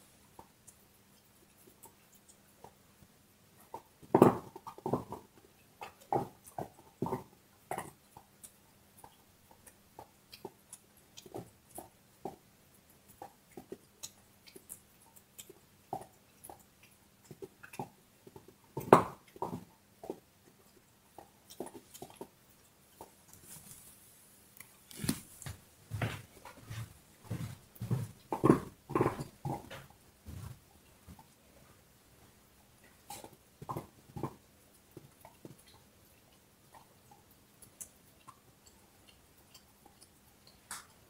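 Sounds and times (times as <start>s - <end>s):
dog crunching a bone: 3.6s - 23.8s, 24.6s - 25.6s, 27.4s - 30.0s, 32.9s - 41.0s.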